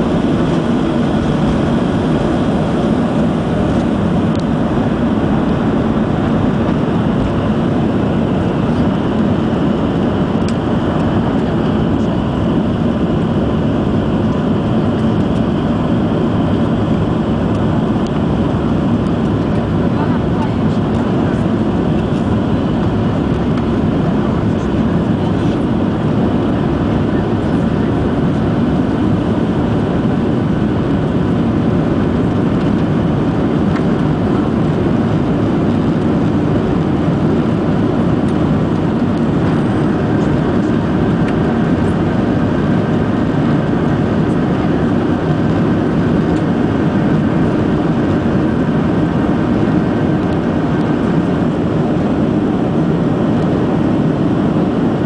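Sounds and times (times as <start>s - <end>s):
jet engine roar in cabin: 0.0s - 55.0s.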